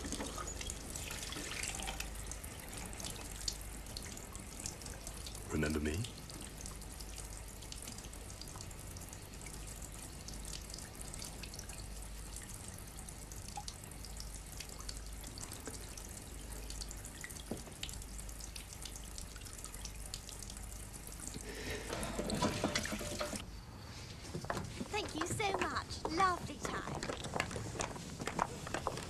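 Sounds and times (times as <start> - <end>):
faint drips: 0.0 - 23.4
tap water running into sink: 13.2 - 23.4.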